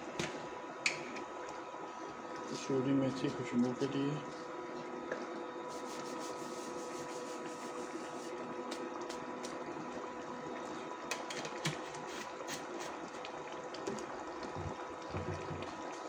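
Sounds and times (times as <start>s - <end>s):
electric cooker humming: 0.0s - 16.0s
curry simmering with soft pops: 8.3s - 16.0s.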